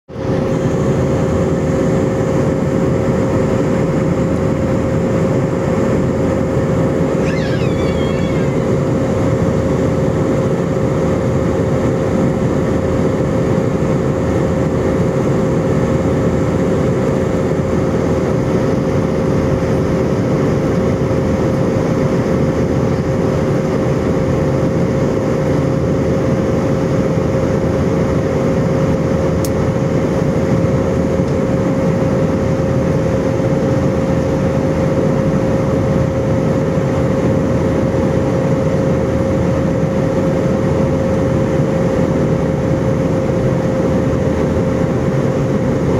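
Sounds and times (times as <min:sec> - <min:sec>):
airliner cabin jet engine roar: 0:00.1 - 0:45.9
low two-tone hum: 0:06.9 - 0:11.0.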